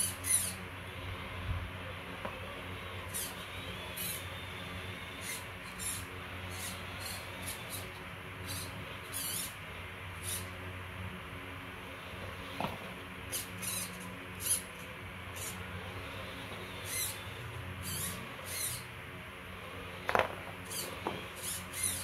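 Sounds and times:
gear motors humming: 0:00.0 - 0:22.0
high-pitched squeaks: 0:03.0 - 0:09.6, 0:13.3 - 0:18.9, 0:20.6 - 0:22.0.

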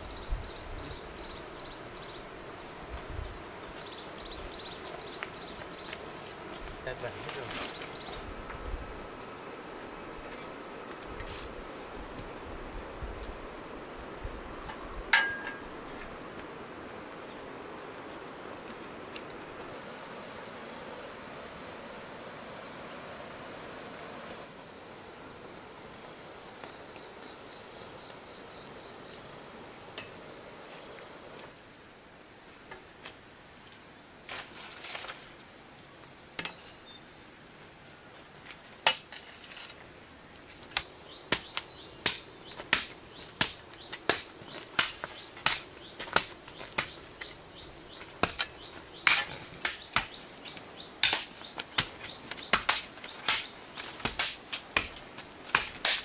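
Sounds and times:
insects chirring: 0:00.0 - 0:56.0
sharp chopping strikes: 0:40.8 - 0:47.0, 0:48.2 - 0:50.2, 0:51.0 - 0:56.0.

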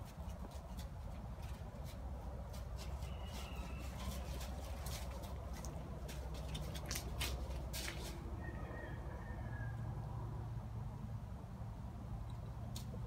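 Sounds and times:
footsteps in dry leaves: 0:01.4 - 0:08.4.

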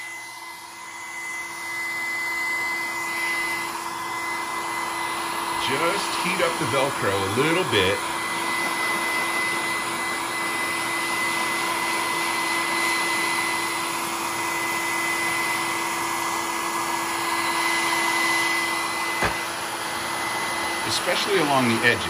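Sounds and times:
hot-air blower whirring: 0:00.0 - 0:22.0.

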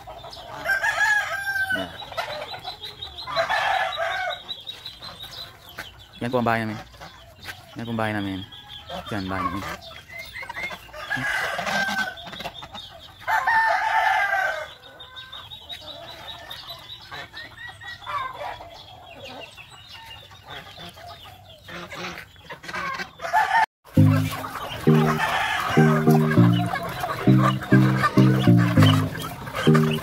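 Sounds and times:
chickens clucking: 0:00.0 - 0:30.0
rooster crowing: 0:00.6 - 0:01.9, 0:11.0 - 0:12.2, 0:13.3 - 0:14.7
background music with bass line: 0:23.9 - 0:30.0.

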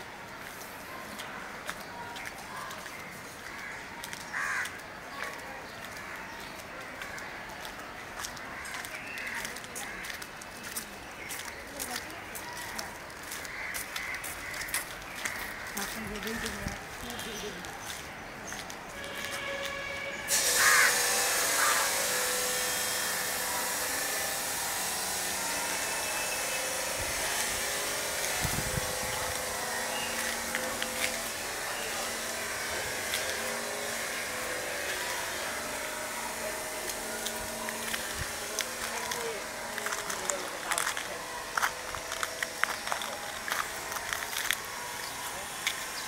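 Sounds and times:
power tool hissing: 0:20.2 - 0:46.0.

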